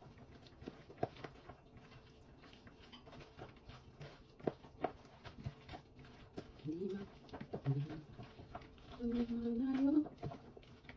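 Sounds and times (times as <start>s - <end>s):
wet squelches of hand mixing: 0.0s - 10.9s.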